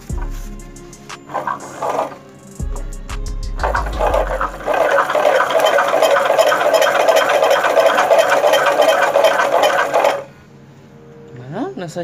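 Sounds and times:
generator gears clattering: 1.2 - 2.8, 3.6 - 10.4.

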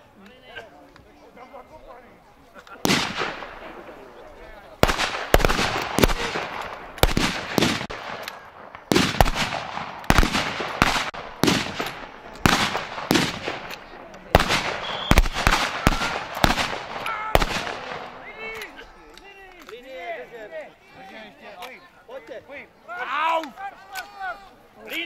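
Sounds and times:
single gunshots with echo: 2.8 - 4.2, 4.8 - 18.2.

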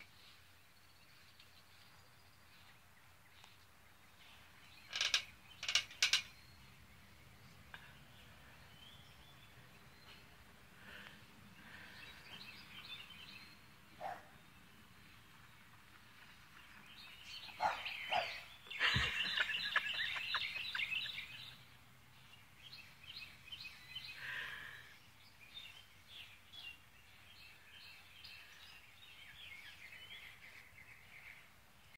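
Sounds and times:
birds chirping and singing: 11.6 - 31.6.

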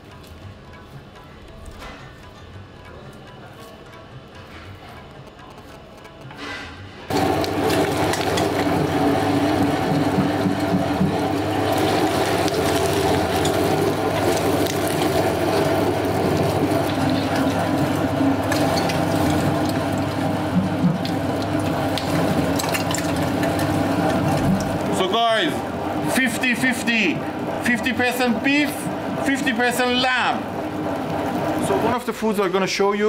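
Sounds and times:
electric meat grinder running: 7.1 - 32.6.

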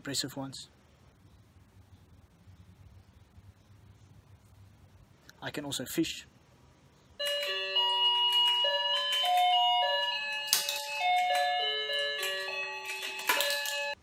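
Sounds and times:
tinny electronic toy tune: 7.2 - 14.0.

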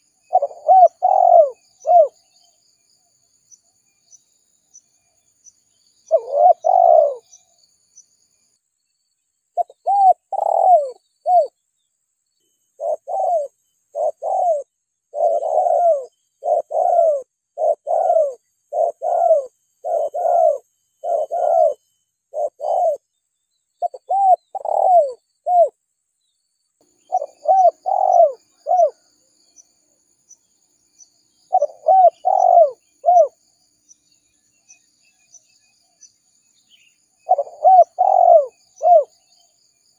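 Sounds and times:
dove cooing: 0.0 - 2.2, 6.1 - 7.4, 9.6 - 11.5, 12.8 - 23.0, 23.8 - 25.7, 27.1 - 29.0, 31.5 - 33.4, 37.2 - 39.2.

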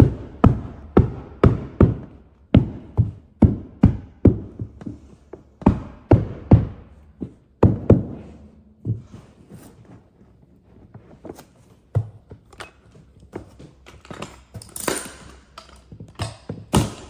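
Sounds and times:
hammer knocking on carpet stair tool: 0.0 - 9.3.

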